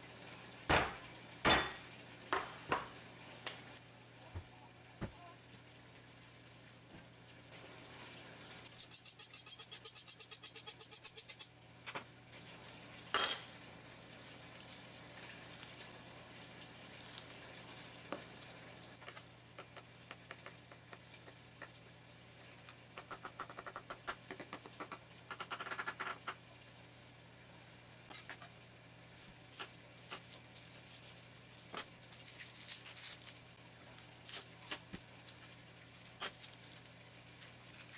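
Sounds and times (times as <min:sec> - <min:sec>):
knife chopping on wooden board: 0:00.7 - 0:02.9
knife honed on sharpening steel: 0:08.8 - 0:11.5.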